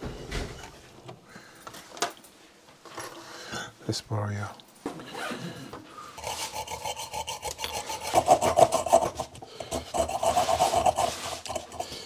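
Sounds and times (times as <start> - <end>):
hacksaw sawing through metal screw: 6.2 - 11.9.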